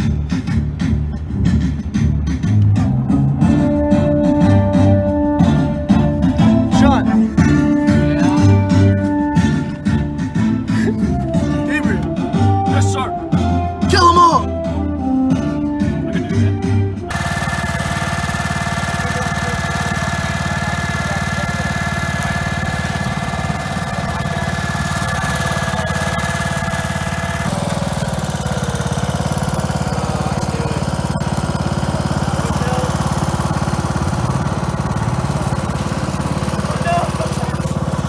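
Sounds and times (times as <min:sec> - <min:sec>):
high steady whining tones: 0:17.1 - 0:38.0
small petrol engine idling: 0:17.1 - 0:38.0.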